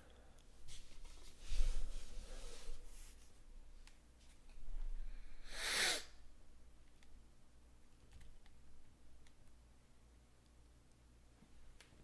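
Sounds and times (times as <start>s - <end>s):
person sneezing: 5.5s - 6.2s.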